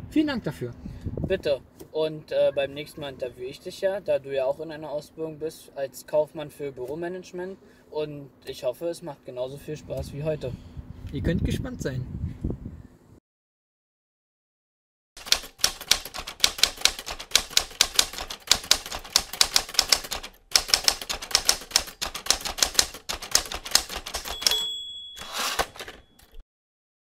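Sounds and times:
typewriter carriage rattle: 0:15.2 - 0:26.4
typewriter key strikes: 0:15.2 - 0:26.4
typewriter bell ring: 0:21.5 - 0:26.4.

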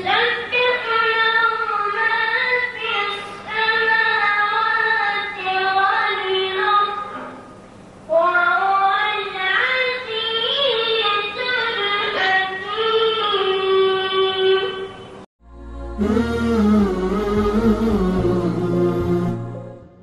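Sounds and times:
boy chanting melodically: 0:00.0 - 0:07.1, 0:08.1 - 0:14.9, 0:15.9 - 0:19.0
faint steady hum: 0:00.0 - 0:20.0.

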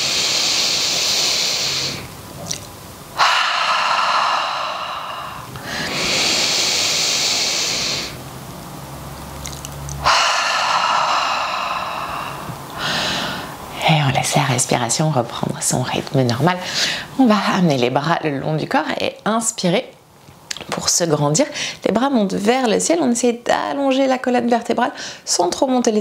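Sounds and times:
woman breathing deeply: 0:00.0 - 0:02.1, 0:03.2 - 0:08.2, 0:10.0 - 0:13.8, 0:16.6 - 0:17.1, 0:25.0 - 0:25.2.

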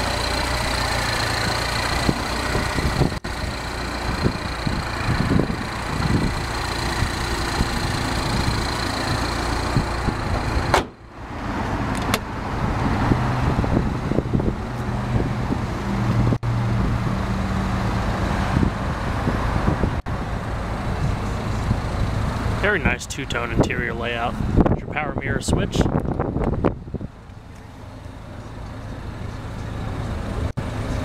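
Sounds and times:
car engine idling: 0:00.0 - 0:12.6, 0:19.8 - 0:31.0.

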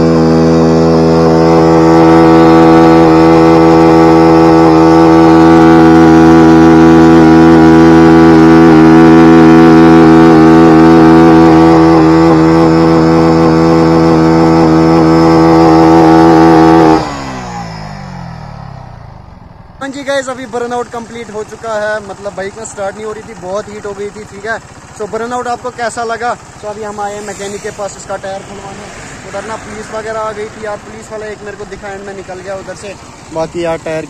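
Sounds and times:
motorcycle engine revving high: 0:00.0 - 0:34.0.

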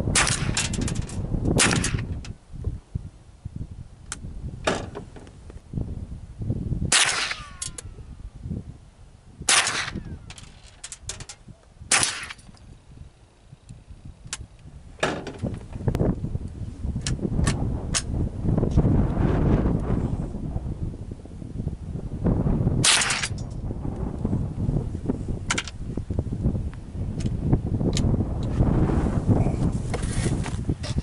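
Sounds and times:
wind rumbling on microphone: 0:00.0 - 0:31.0
rifle shots: 0:00.1 - 0:00.9, 0:01.6 - 0:02.1, 0:06.9 - 0:07.8, 0:09.5 - 0:10.1, 0:11.9 - 0:12.4, 0:22.8 - 0:23.4.

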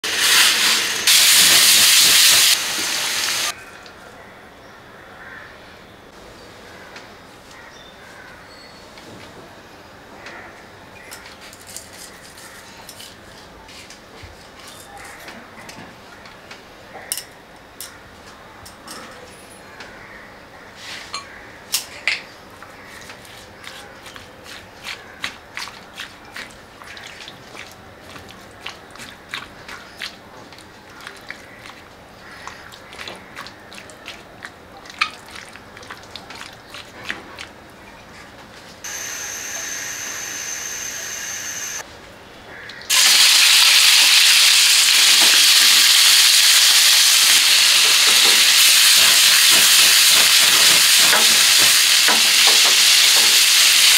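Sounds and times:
wet squishing of prawns: 0:22.8 - 0:37.8.

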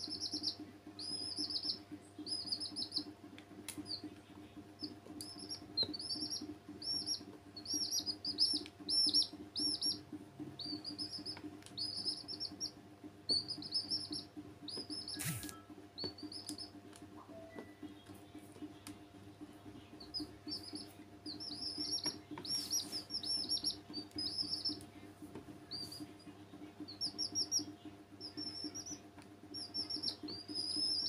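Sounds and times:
baby chicks peeping: 0:00.0 - 0:31.0
steady low hum: 0:00.0 - 0:31.0.

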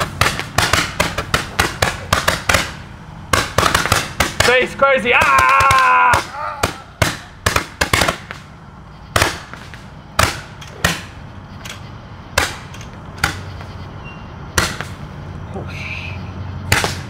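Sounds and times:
fireworks bangs: 0:00.0 - 0:08.5, 0:09.1 - 0:11.3.

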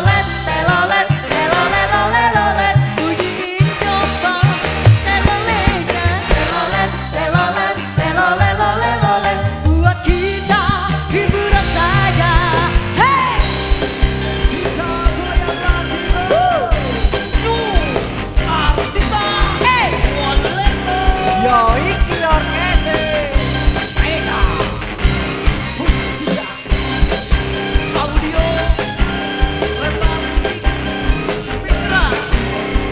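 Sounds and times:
woman singing into microphone: 0:00.0 - 0:13.6, 0:19.3 - 0:21.9
band with steady drum beat: 0:00.0 - 0:32.9.

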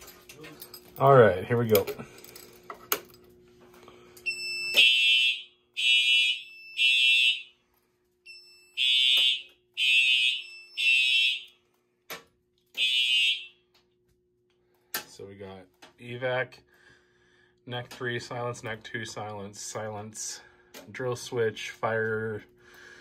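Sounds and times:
fire alarm horn blasts: 0:04.3 - 0:07.6, 0:08.3 - 0:11.6, 0:12.8 - 0:13.7.

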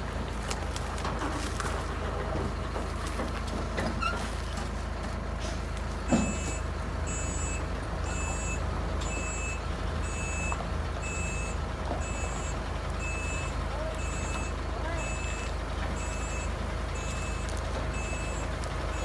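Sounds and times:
truck engine rumbling: 0:00.0 - 0:19.0
reversing alarm beeps: 0:06.1 - 0:19.0.

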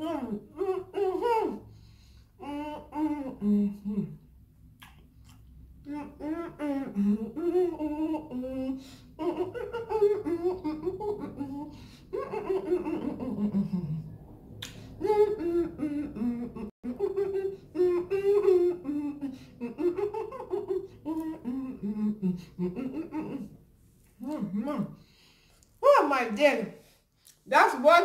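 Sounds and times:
woman humming with mouth closed: 0:02.4 - 0:04.2, 0:05.8 - 0:23.6, 0:24.2 - 0:25.0
woman laughing muffled: 0:15.0 - 0:23.6.

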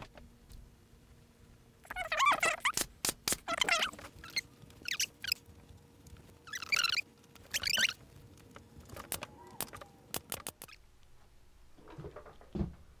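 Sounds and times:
sharp clicks: 0:08.5 - 0:10.8.

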